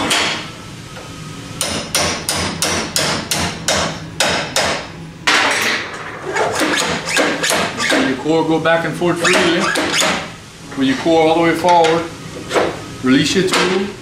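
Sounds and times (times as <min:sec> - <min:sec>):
hammer striking metal punch: 0:01.6 - 0:05.8.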